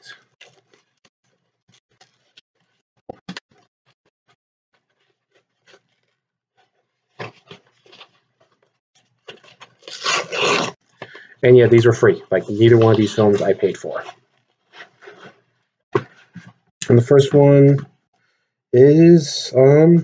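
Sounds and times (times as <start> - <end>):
plastic wrapping rustling: 0.0 - 3.4, 4.7 - 11.2
plastic wrapping crackling: 0.1 - 3.5, 4.7 - 11.0.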